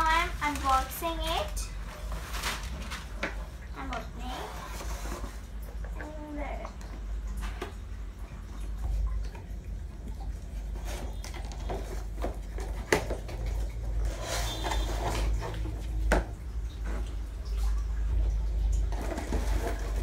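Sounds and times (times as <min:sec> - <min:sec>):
plastic packing rustling: 0:00.0 - 0:05.6, 0:18.9 - 0:20.0.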